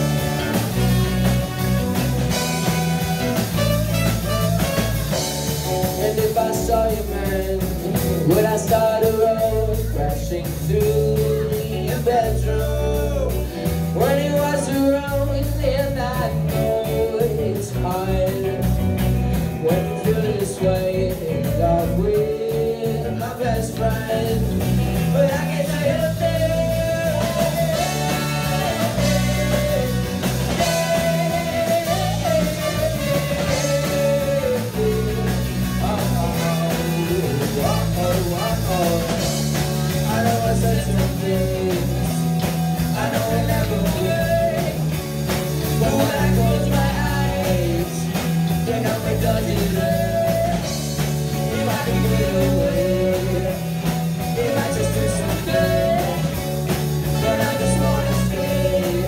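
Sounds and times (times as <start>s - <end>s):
wavering lead melody: 0.0s - 6.0s
live rock band playing: 0.0s - 59.0s.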